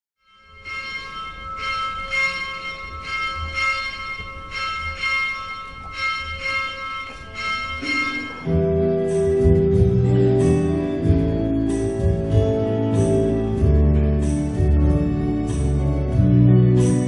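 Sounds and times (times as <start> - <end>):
church bells ringing: 0.2 - 17.0
instrumental music with low notes: 6.9 - 17.0.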